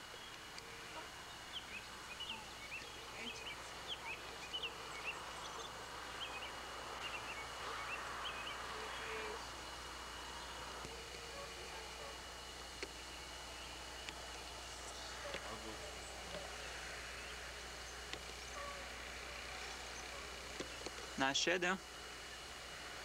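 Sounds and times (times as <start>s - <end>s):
small birds chirping: 0.0s - 22.8s
steady background hiss: 0.0s - 23.0s.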